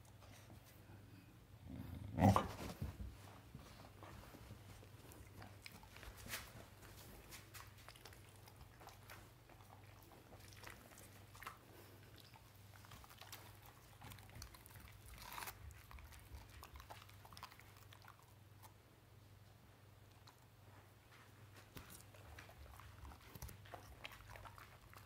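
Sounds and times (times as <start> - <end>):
dog chewing a toy: 3.6 - 18.8, 21.6 - 25.0.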